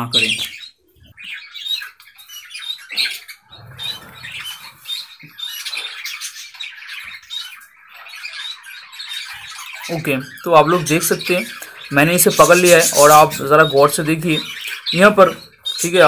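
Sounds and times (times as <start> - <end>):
budgerigar squawking: 0.0 - 16.0.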